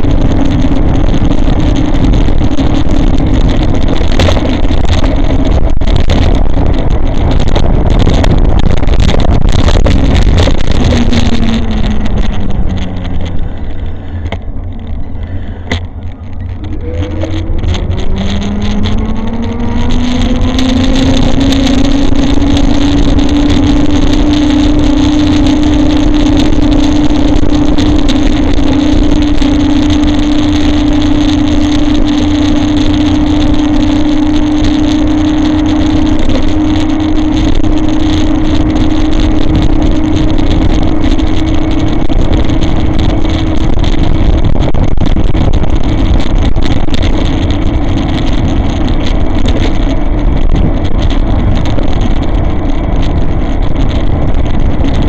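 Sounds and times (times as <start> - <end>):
wind on microphone: 0.0 - 55.0
electric bike motor whining: 9.9 - 46.2.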